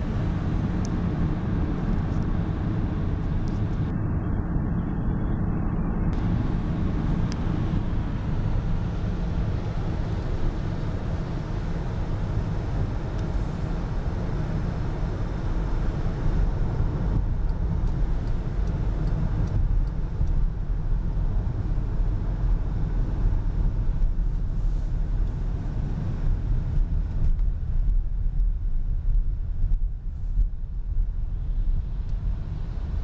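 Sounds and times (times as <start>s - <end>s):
car engine and tyre rumble: 0.0s - 33.0s.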